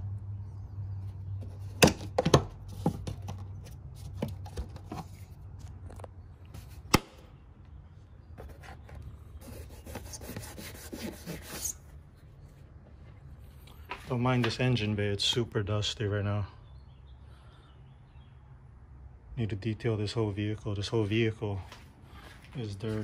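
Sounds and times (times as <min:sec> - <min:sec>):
rubbing and scuffing: 0:08.2 - 0:14.7, 0:21.0 - 0:23.0.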